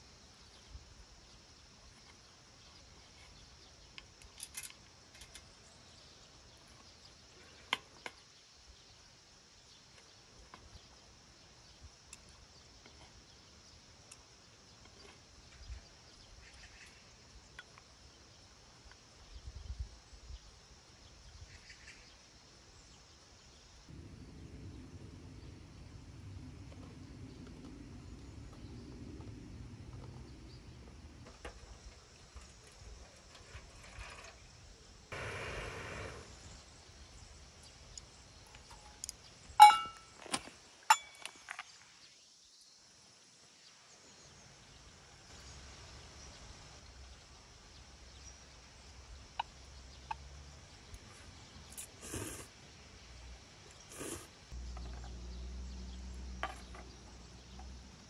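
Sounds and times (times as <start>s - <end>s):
low steady rumble: 23.9s - 32.4s
cookware clinking: 39.6s - 40.1s, 40.9s - 41.3s.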